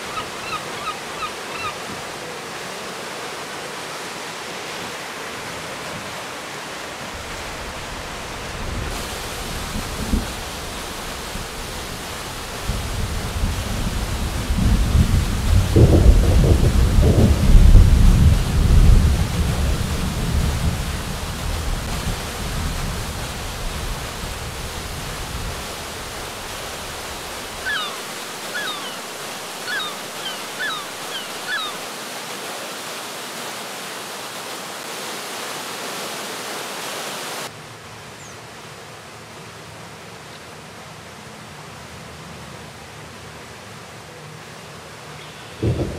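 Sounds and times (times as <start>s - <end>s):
fast-flowing river hiss: 0.0s - 45.9s
water rushing over weir: 0.0s - 45.9s
small bird chirping: 27.7s - 29.0s, 29.7s - 31.8s.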